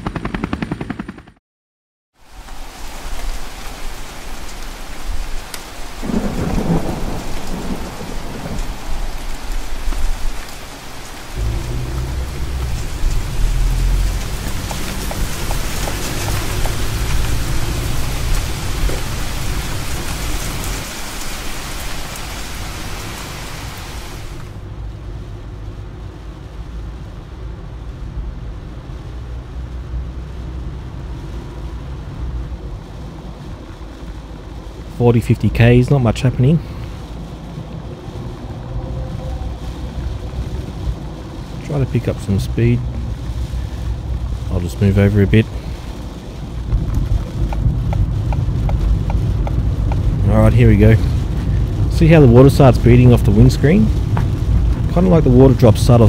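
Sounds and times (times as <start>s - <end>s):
car driving in rain from inside: 2.2s - 56.0s
heavy rain: 2.2s - 56.0s
thunder rumbling: 2.4s - 25.0s, 30.3s - 56.0s.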